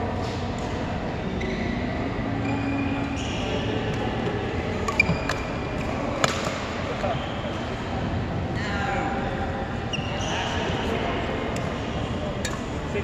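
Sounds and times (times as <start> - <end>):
sports hall background noise: 0.0 - 13.0
racket striking shuttlecock: 6.2 - 6.7.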